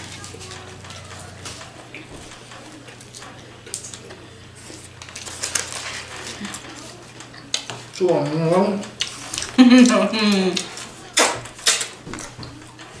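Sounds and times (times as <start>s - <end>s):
paper wrappers crinkling: 0.0s - 8.0s.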